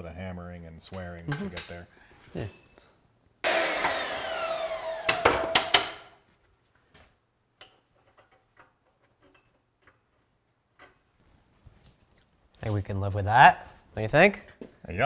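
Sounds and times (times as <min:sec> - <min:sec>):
shop tool whir winding down: 0:03.4 - 0:06.0.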